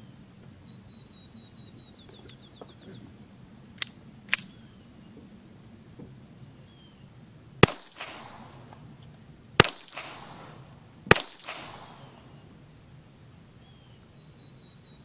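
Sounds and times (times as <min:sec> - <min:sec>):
pistol shots: 0:07.6 - 0:08.8, 0:09.6 - 0:12.4
fainter echo crack: 0:07.6 - 0:12.8.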